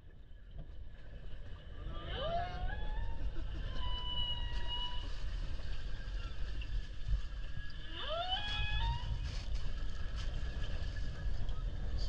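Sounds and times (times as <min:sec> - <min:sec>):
boat engine rumble: 0:00.0 - 0:12.0
wind on microphone: 0:01.6 - 0:12.0
rising tonal call: 0:01.8 - 0:05.4, 0:07.7 - 0:09.2.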